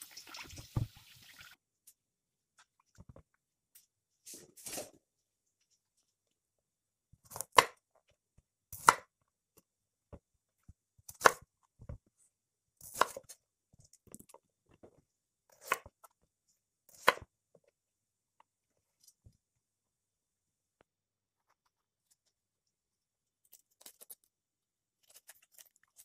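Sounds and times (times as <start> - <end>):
knife chopping on wooden board: 7.3 - 7.8, 8.8 - 9.1.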